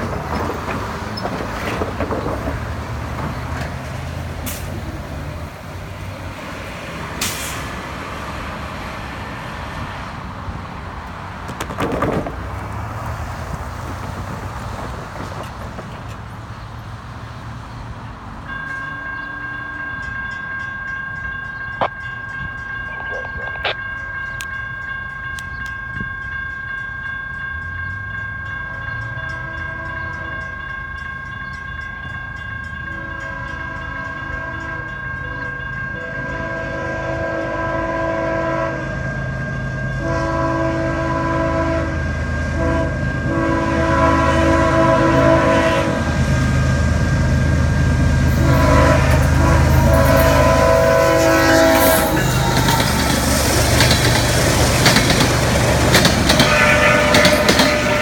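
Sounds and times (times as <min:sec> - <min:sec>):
locomotive horn blasts: 0:29.2 - 0:30.5, 0:32.9 - 0:39.1, 0:39.9 - 0:46.3, 0:48.3 - 0:52.7, 0:56.2 - 0:58.0.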